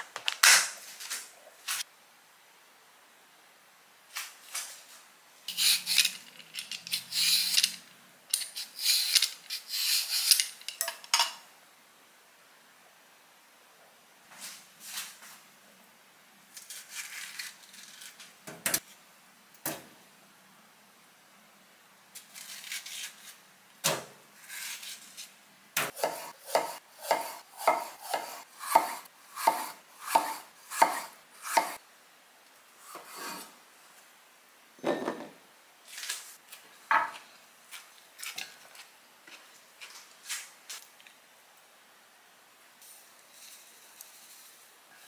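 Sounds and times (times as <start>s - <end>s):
knife chopping on cutting board: 25.8s - 31.8s.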